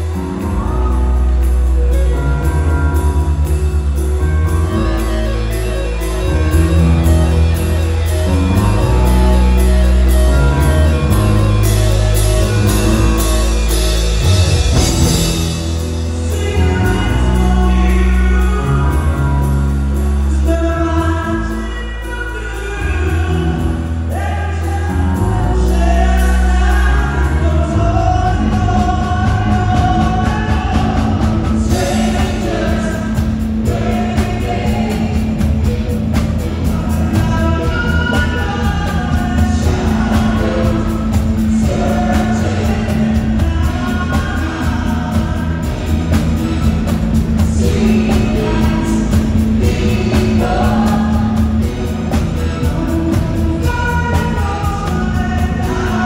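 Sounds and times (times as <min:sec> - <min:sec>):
electric bass guitar: 0:00.0 - 0:56.0
keyboards: 0:00.0 - 0:56.0
singers: 0:00.0 - 0:56.0
steady beat: 0:29.4 - 0:56.0.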